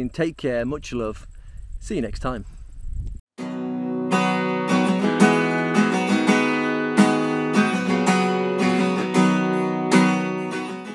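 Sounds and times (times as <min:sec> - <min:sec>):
acoustic guitar strumming: 0:03.4 - 0:10.9.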